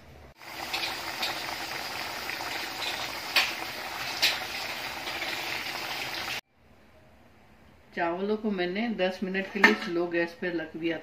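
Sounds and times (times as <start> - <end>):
water boiling in a pot: 0.4 - 6.4.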